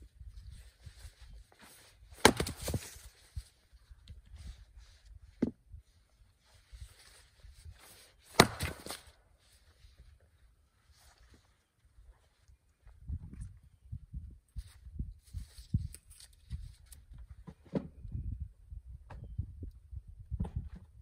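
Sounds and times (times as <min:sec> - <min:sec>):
axe splitting firewood: 0:02.2 - 0:03.0, 0:08.2 - 0:09.2.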